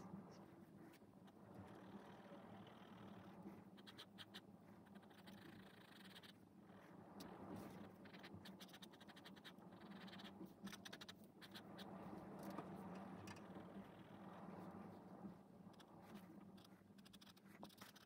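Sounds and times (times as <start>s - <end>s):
pen scratching on paper: 3.1s - 12.6s, 15.8s - 18.0s.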